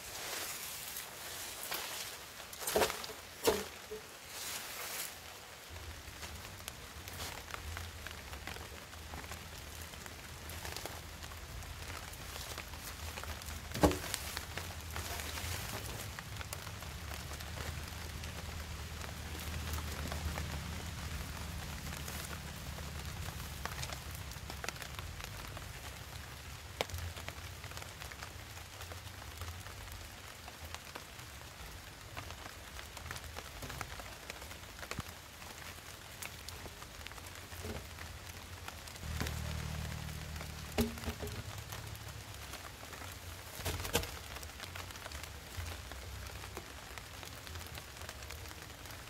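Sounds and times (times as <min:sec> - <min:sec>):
rain falling on forest: 0:00.0 - 0:49.0
wooden logs knocking: 0:02.7 - 0:04.0, 0:13.2 - 0:15.8, 0:40.6 - 0:41.6, 0:43.6 - 0:44.2.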